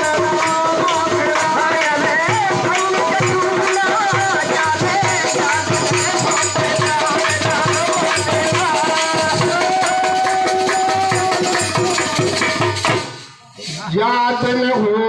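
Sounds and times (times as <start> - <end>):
drum beat: 0.0 - 14.2
jingling rattling percussion: 0.0 - 14.2
voices singing: 0.0 - 15.0.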